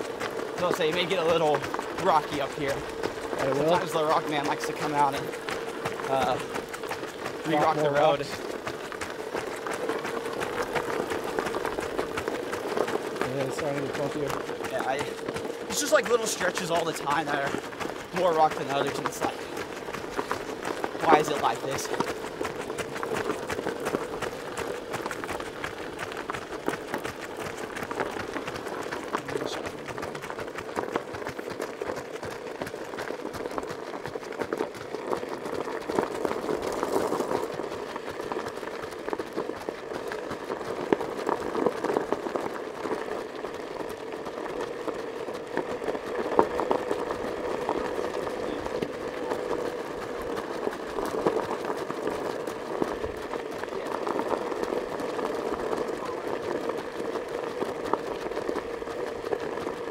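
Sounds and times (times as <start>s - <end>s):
crunching over gravel road: 0.0s - 59.9s
sharp clicks from stones: 0.0s - 59.9s.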